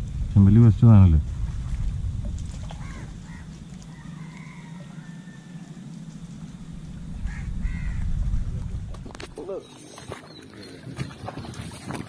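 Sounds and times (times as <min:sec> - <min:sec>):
wind rumble on microphone: 0:00.0 - 0:10.2
faint bird calls: 0:02.6 - 0:08.4, 0:09.4 - 0:11.9.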